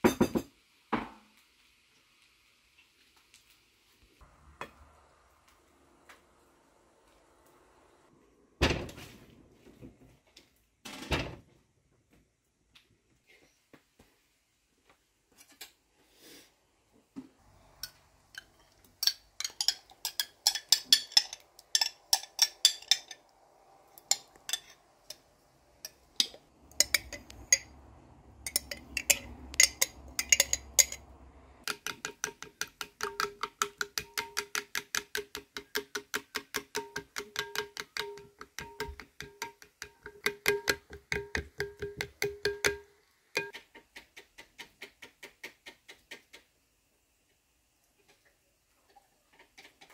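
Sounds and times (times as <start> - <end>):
spoon clinking on glass bowl: 17.8 - 23.2, 24.0 - 25.2, 25.8 - 27.8, 28.4 - 31.1, 31.7 - 43.5
glass bowl ringing: 28.5 - 31.0.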